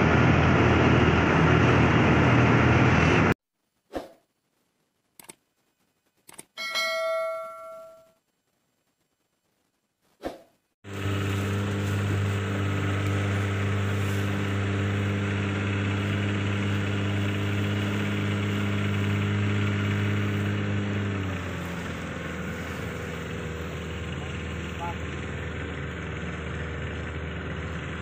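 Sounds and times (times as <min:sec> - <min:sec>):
brief chime: 0:06.6 - 0:08.2
boat engine humming: 0:10.8 - 0:28.0.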